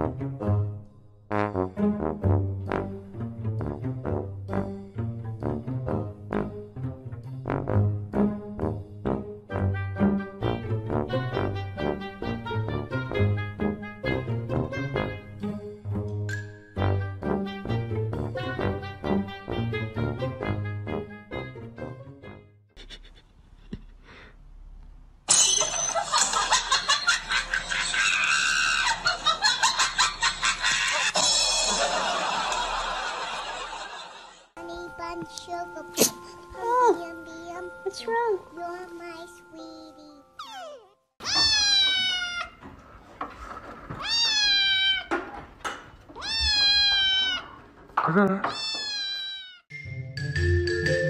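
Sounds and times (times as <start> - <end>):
people laughing: 26.0 - 34.5
people shrieking: 28.0 - 29.1
kitten meowing: 40.4 - 42.6, 44.0 - 45.1, 46.2 - 47.5, 48.5 - 49.6.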